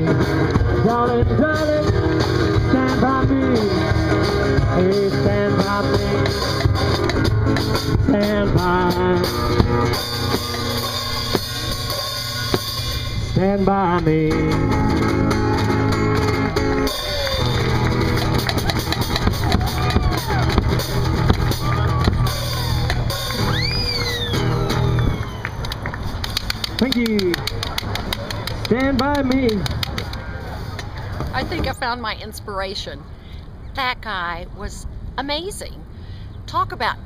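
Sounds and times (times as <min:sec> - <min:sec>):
strummed acoustic guitar: 0:00.0 - 0:23.5
bass drum and cymbals beat: 0:00.0 - 0:25.2.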